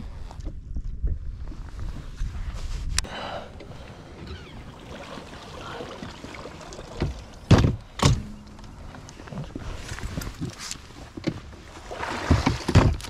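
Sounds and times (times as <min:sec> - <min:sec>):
light wind noise: 0:00.0 - 0:13.0
heavy thumps on boat: 0:06.9 - 0:09.0.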